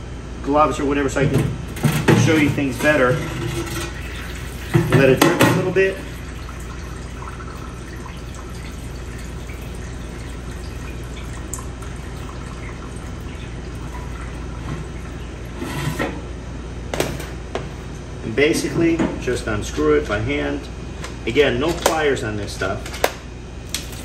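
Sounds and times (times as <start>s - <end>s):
steady background hum: 0.0s - 24.0s
oil dripping into oil: 5.8s - 15.5s.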